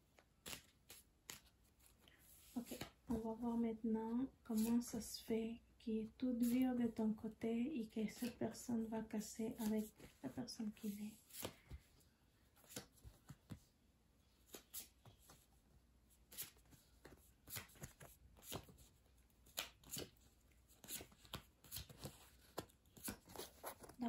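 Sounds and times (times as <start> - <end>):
cards snapping and tapping: 19.4 - 20.1.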